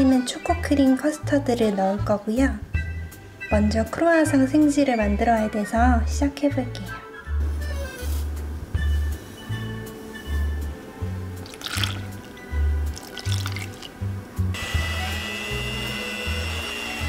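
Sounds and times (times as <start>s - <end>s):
background music: 0.0s - 17.0s
liquid pouring into bowl: 11.4s - 14.0s
electric hand mixer whining: 14.6s - 17.0s.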